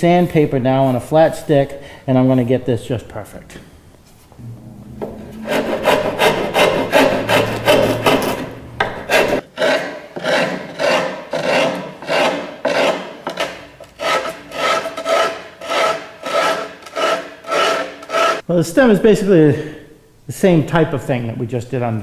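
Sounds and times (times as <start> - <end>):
hand file rasping on plywood: 5.0 - 18.4.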